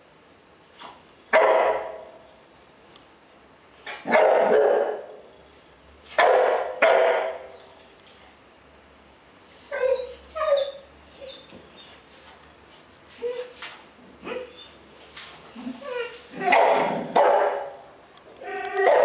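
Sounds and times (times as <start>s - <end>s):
dog barking sharply: 1.4s - 2.1s, 4.0s - 5.1s, 6.2s - 7.5s, 16.5s - 17.8s
dog yipping: 9.7s - 11.9s, 15.8s - 17.7s, 18.4s - 19.0s.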